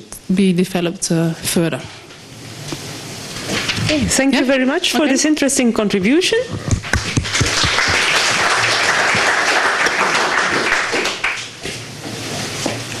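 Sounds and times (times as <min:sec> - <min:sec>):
audience applauding: 0:06.7 - 0:11.6.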